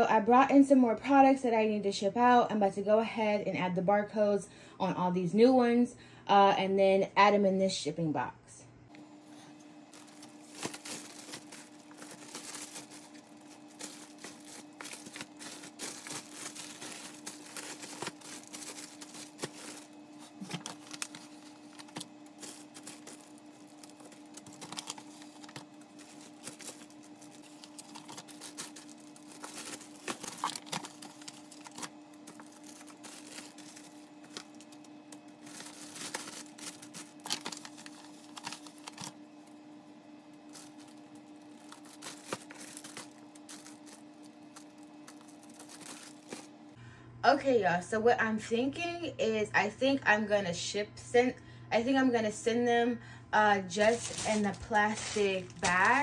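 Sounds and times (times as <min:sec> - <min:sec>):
steady low hum: 0:08.6 - 0:56.0
plastic bags crinkling: 0:09.0 - 0:46.7, 0:53.7 - 0:56.0.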